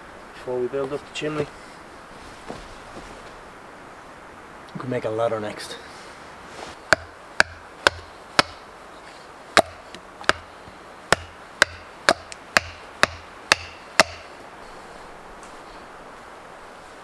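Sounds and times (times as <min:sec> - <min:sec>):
axe chopping wood: 0:06.9 - 0:08.6, 0:09.6 - 0:10.5, 0:11.1 - 0:14.3.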